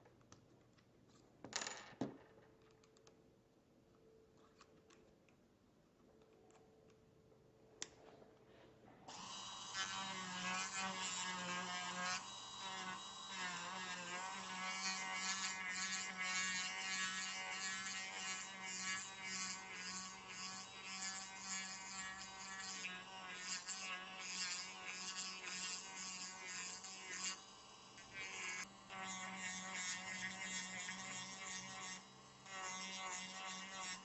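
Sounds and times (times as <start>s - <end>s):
micromotor grinding with steady whine: 9.1s - 34.0s.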